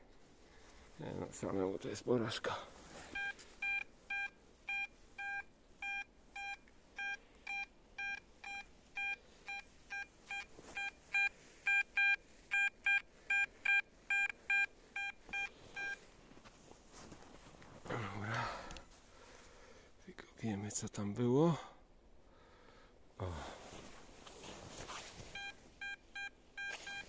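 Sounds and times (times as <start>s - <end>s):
metal detector beeping: 3.1s - 16.0s, 25.3s - 27.0s.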